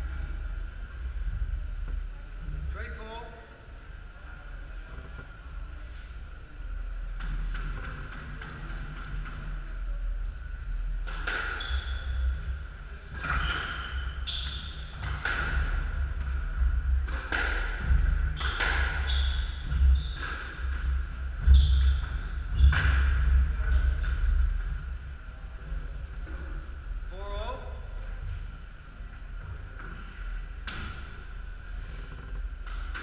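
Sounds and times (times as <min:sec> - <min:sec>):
squash ball hitting racquets and walls: 0:11.0 - 0:12.2, 0:13.1 - 0:24.1.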